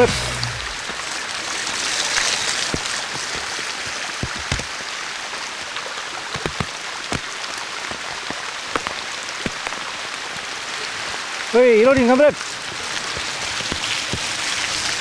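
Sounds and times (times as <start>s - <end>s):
mountain bike passing on dirt: 0.0s - 4.6s, 11.8s - 15.0s
rain hissing on forest: 0.0s - 15.0s.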